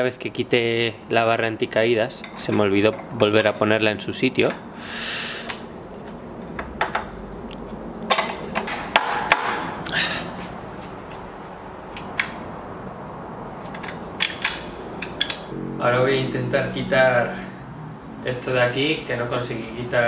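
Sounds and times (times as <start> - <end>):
metal clicks and knocks: 5.5 - 9.6, 11.1 - 12.4, 13.7 - 15.5.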